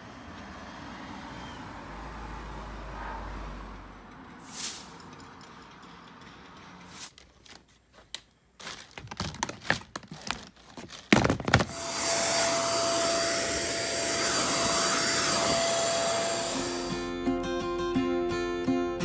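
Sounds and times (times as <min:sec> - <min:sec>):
plastic box clicks and knocks: 0:08.9 - 0:11.7
handheld vacuum cleaner whining: 0:11.2 - 0:17.2.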